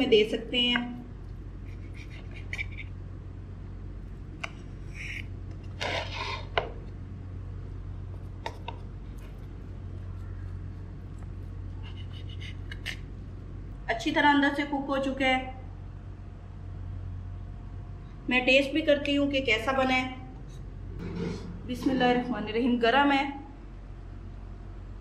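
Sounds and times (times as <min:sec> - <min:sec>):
steady low hum: 0:00.0 - 0:25.0
knife scraping a ceramic plate: 0:01.6 - 0:02.9, 0:04.4 - 0:06.8, 0:11.7 - 0:13.1, 0:20.5 - 0:21.6.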